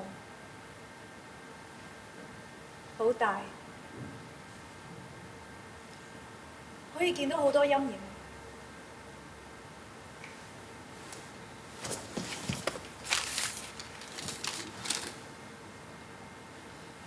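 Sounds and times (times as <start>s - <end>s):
paper rustling: 11.8s - 15.3s.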